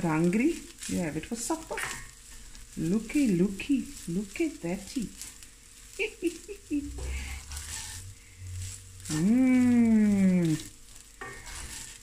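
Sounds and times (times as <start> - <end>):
faint sizzle: 0.0 - 12.0
wooden spoon stir-frying rice: 0.0 - 12.0.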